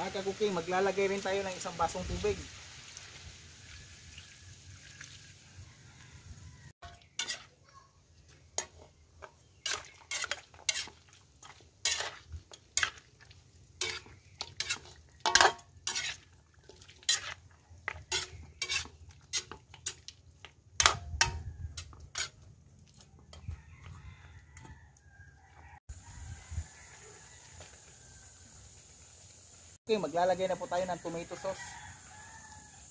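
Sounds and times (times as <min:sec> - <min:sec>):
metal ladle clinking in a wok: 0:06.8 - 0:07.5, 0:13.8 - 0:16.2.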